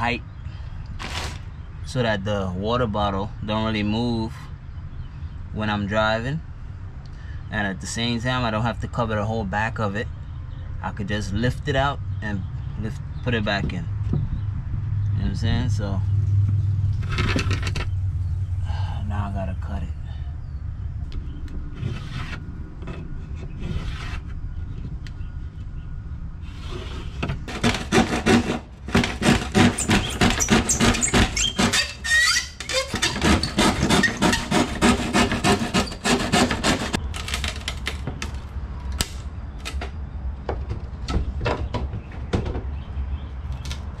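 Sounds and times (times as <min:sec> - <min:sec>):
hand saw cutting wood: 0:27.5 - 0:37.0.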